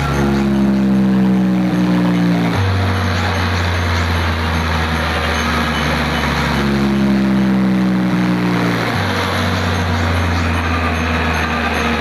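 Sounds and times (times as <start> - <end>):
loud bass-heavy music: 0.0 - 12.0.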